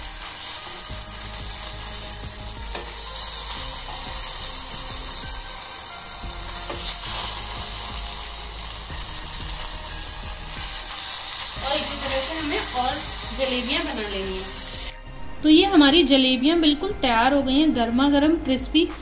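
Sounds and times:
food frying in hot oil: 0.0 - 14.9.

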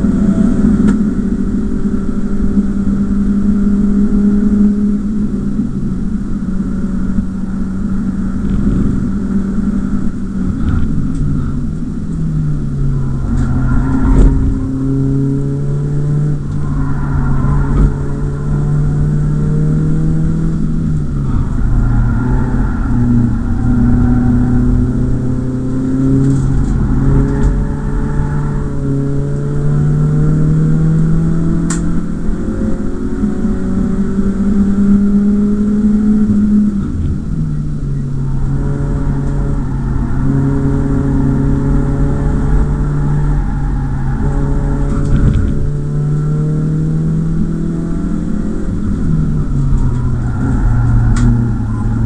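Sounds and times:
car engine revving: 0.0 - 52.0
thump: 45.0 - 45.6.

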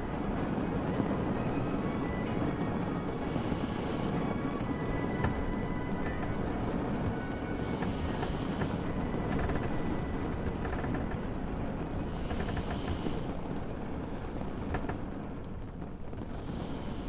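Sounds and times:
low vehicle rumble: 0.0 - 17.0
rain hissing: 0.0 - 17.0
faint clicks: 12.1 - 15.9.

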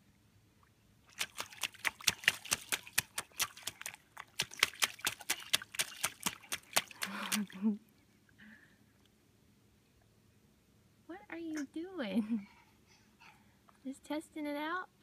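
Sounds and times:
boots stomping through mud: 1.2 - 7.5.

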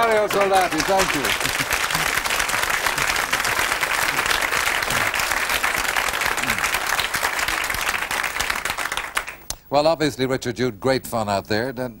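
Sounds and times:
audience applauding: 0.0 - 9.5.

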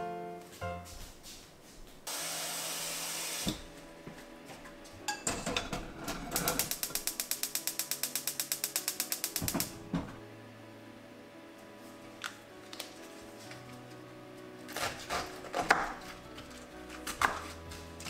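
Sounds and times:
fast mechanical clicks: 6.5 - 9.7.

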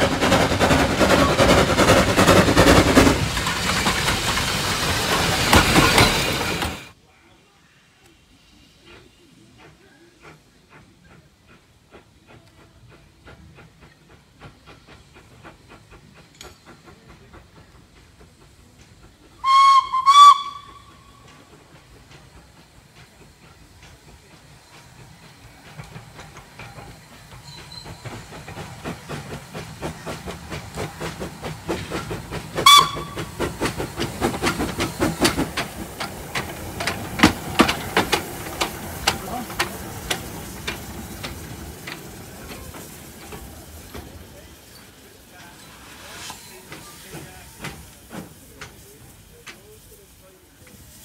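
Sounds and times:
steam locomotive exhaust beats: 0.0 - 7.0, 8.0 - 51.0
steam hissing: 0.0 - 51.0
steam whistle blasts: 19.4 - 21.1, 32.6 - 33.3.

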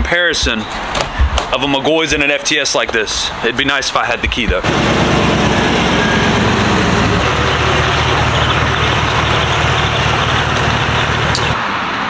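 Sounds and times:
truck engine running: 4.6 - 11.6.

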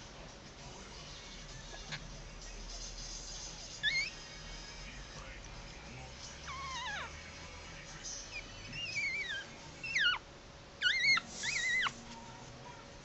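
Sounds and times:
puppies squeaking and whining: 3.8 - 4.3, 6.4 - 7.2, 8.3 - 12.2.

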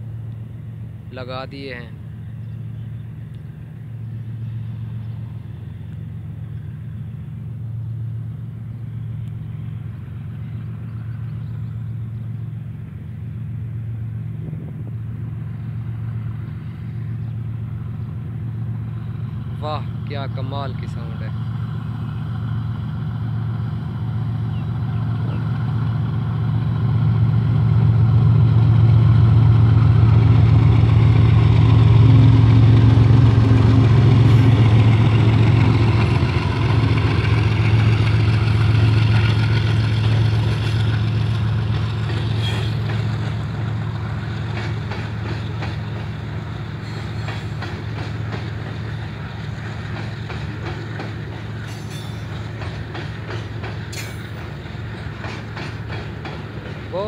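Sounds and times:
diesel locomotive engine drone: 0.0 - 57.0
train wheels clickety-clack: 32.8 - 57.0.

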